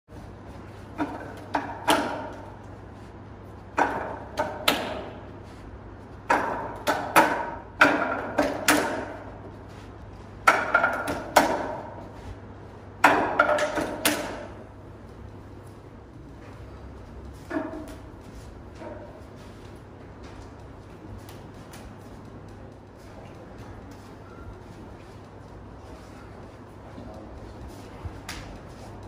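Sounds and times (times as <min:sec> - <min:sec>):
wooden dummy being struck: 0:01.0 - 0:02.5, 0:03.7 - 0:05.2, 0:06.2 - 0:09.3, 0:10.4 - 0:12.0, 0:13.0 - 0:14.6, 0:17.5 - 0:18.0.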